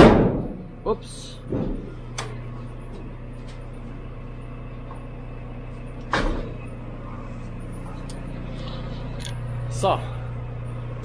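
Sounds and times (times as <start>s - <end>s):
loud clunk: 0.0s - 0.7s, 1.4s - 2.4s, 6.1s - 6.7s
farm vehicle engine idling: 0.0s - 11.0s.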